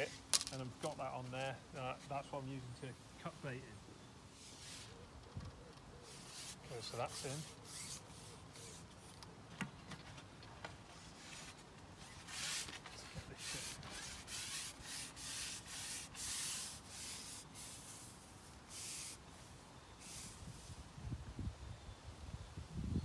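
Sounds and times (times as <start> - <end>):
fishing pole sections rubbing: 4.4 - 5.0, 6.0 - 9.2, 11.0 - 19.2.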